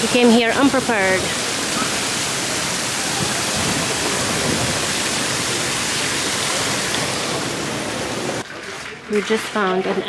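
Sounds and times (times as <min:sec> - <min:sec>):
fountain water splashing: 0:00.0 - 0:09.8.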